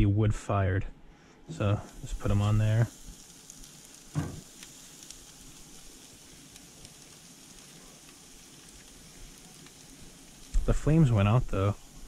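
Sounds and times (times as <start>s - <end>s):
wood fire crackles: 1.1s - 12.0s
fish sizzling on a grill: 1.5s - 12.0s.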